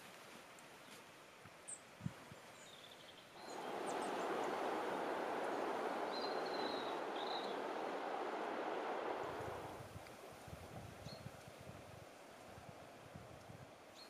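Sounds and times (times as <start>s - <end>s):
bird chirps: 3.4s - 8.3s
loud steady rushing noise: 3.4s - 9.9s.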